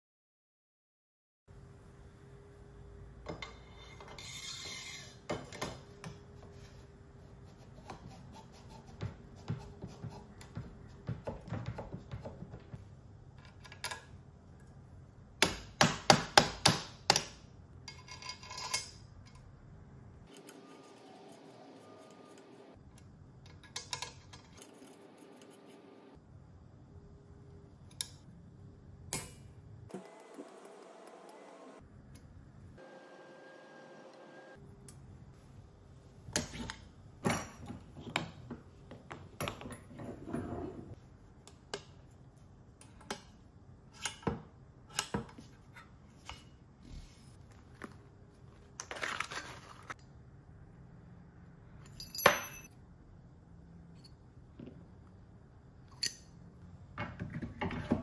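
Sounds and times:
metal parts scraping and clicking: 0:17.9 - 0:19.4.

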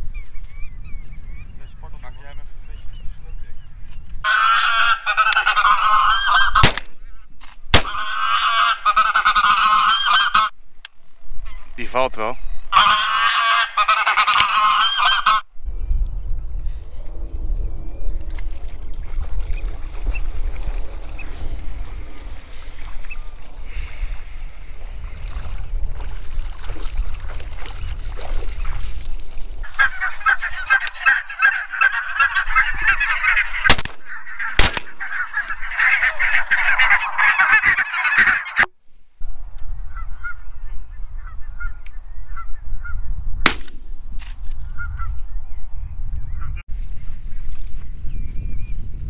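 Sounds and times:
wind on microphone: 0:00.0 - 0:08.2, 0:14.4 - 0:49.0
geese honking: 0:04.2 - 0:07.2, 0:07.8 - 0:10.6, 0:12.7 - 0:15.5, 0:29.6 - 0:38.7, 0:39.9 - 0:43.0
shotgun blasts: 0:06.6 - 0:07.0, 0:07.7 - 0:08.0, 0:33.7 - 0:35.0, 0:43.4 - 0:43.9
water sloshing: 0:24.5 - 0:30.4.

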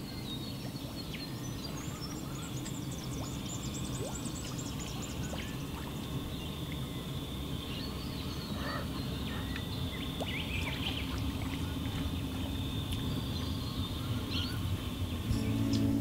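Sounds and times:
faint high-pitched hum: 0:00.0 - 0:16.0
steady low rumble: 0:14.6 - 0:16.0.

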